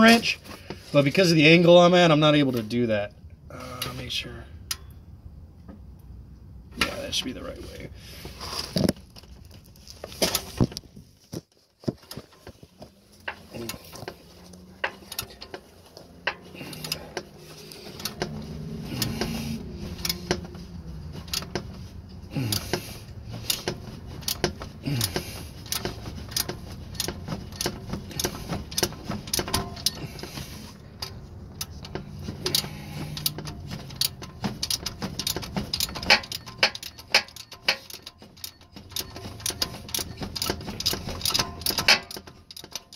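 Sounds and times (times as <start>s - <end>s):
ratchet wrench clicking: 14.8s - 15.6s, 16.2s - 42.9s.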